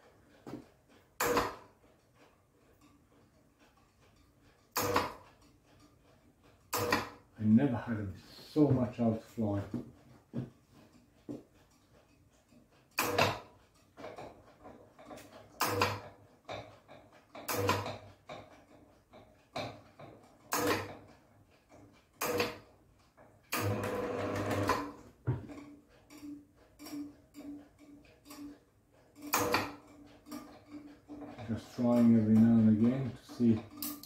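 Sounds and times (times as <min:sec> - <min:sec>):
tool clicking and knocking: 0:00.0 - 0:07.4, 0:09.7 - 0:34.0
rattle: 0:25.4 - 0:34.0.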